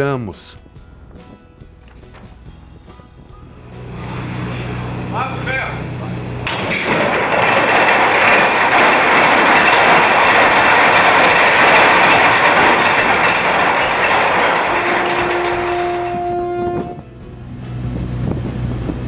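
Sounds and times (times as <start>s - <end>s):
anchor chain rattling out: 6.4s - 17.0s.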